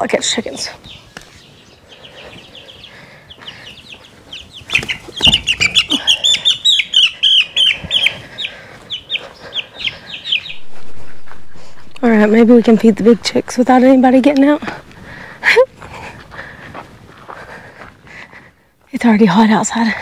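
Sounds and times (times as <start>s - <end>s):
chicks peeping in distress: 0.3s - 15.4s.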